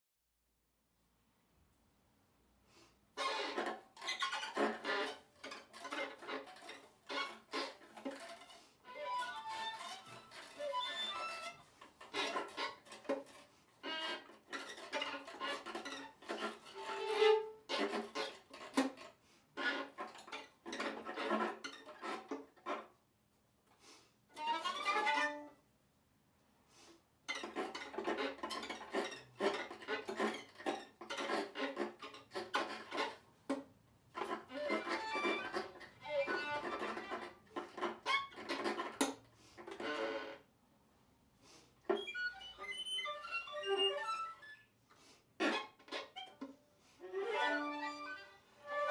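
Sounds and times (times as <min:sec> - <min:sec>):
violin and viola playing: 0:04.5 - 0:12.8, 0:13.8 - 0:18.8, 0:24.4 - 0:25.5, 0:34.2 - 0:38.9, 0:42.0 - 0:44.6, 0:47.0 - 0:48.9.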